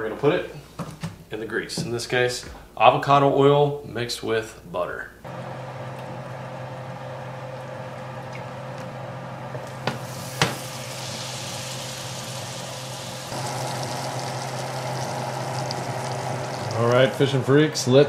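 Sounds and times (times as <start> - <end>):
butter and oil sizzling: 5.4 - 17.5.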